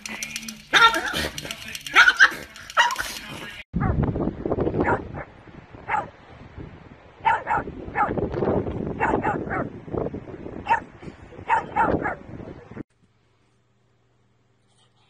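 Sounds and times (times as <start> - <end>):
dog barking: 0.7 - 1.2, 1.9 - 3.1, 4.8 - 5.3, 5.9 - 6.1, 7.2 - 8.2, 9.0 - 9.7, 10.6 - 12.3.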